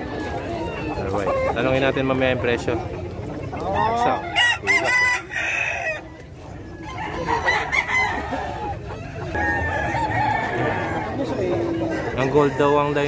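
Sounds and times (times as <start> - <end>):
roosters crowing: 3.6 - 13.0.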